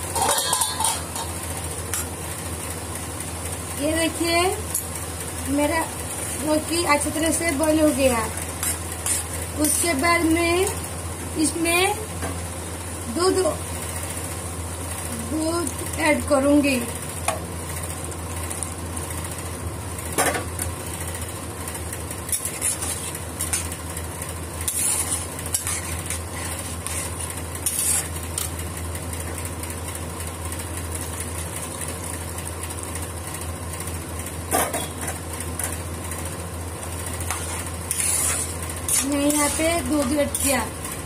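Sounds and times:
metal pots knocking: 0.0 - 1.4
spatula scraping a pan: 0.0 - 1.4, 7.8 - 9.9, 22.3 - 23.7, 24.6 - 28.6, 37.2 - 40.6.

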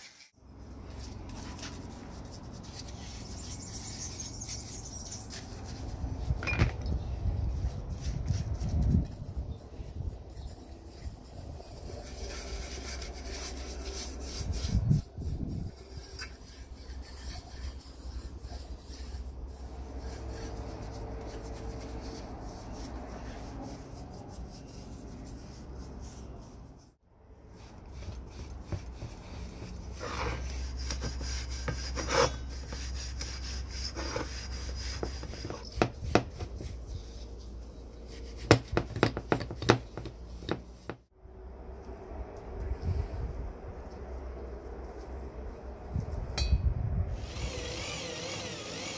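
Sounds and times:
brush scrubbing metal: 9.9 - 26.6, 27.5 - 40.8.

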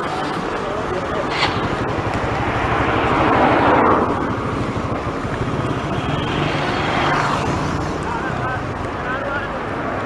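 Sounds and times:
car passing close: 0.7 - 8.6.

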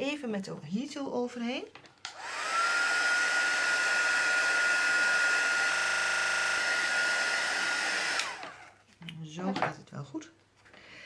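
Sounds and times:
heat gun blowing with whine: 2.1 - 8.8.

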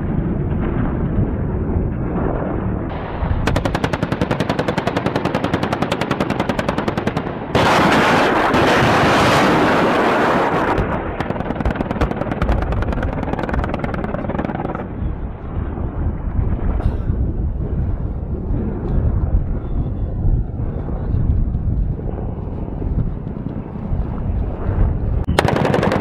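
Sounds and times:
rapid cannon fire: 0.0 - 15.0, 25.3 - 26.0.

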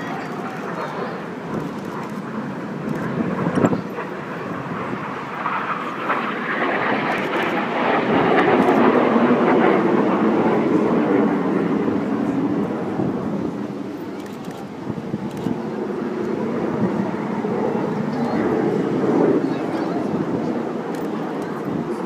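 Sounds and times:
aircraft engines roaring: 0.0 - 22.0.

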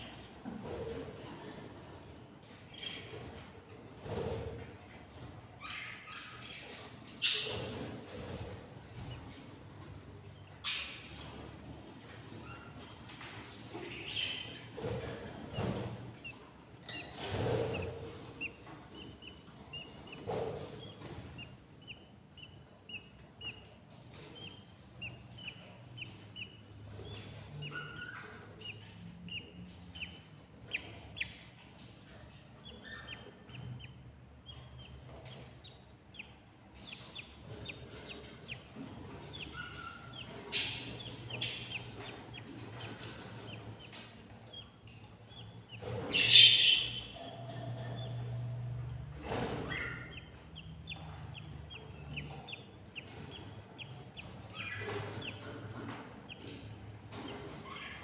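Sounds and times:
budgerigars chirping: 5.1 - 58.0.

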